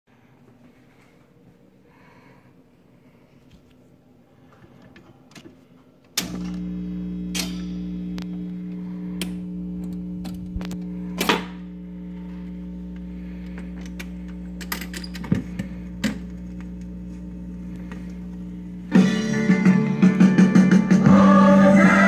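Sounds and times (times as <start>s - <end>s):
record player hum: 4.7s - 22.0s
changer mechanism clicks and clunks: 4.8s - 17.0s.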